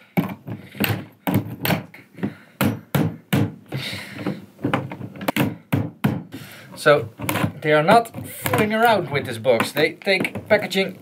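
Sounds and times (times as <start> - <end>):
hammer knocking on wooden crate: 0.2 - 6.4
crate lid scraping: 6.6 - 10.9.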